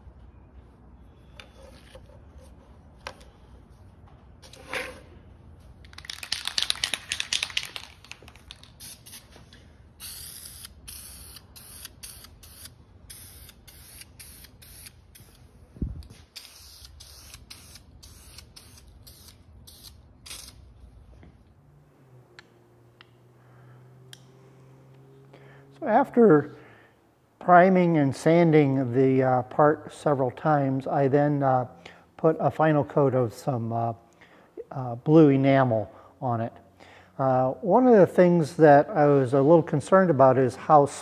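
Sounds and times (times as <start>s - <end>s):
spray can hissing bursts: 8.6s - 9.4s, 10.0s - 15.4s, 16.2s - 20.6s.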